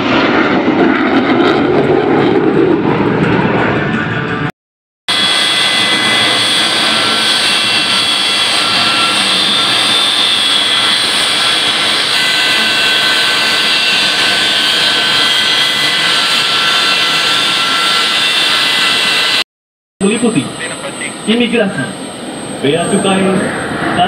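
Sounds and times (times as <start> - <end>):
jet engines whining: 0.0 - 4.5, 5.1 - 19.4, 20.0 - 24.0.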